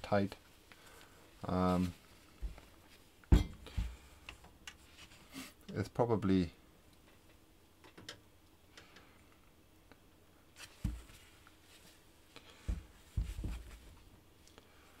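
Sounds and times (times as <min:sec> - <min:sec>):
dull knocks: 0:12.7 - 0:13.7.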